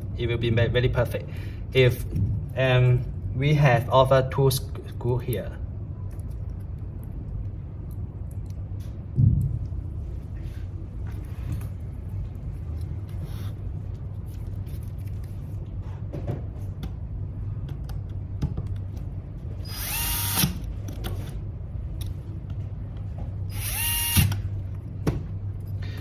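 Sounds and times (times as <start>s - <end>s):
electric screwdriver whining: 19.6s - 20.6s, 23.5s - 24.4s.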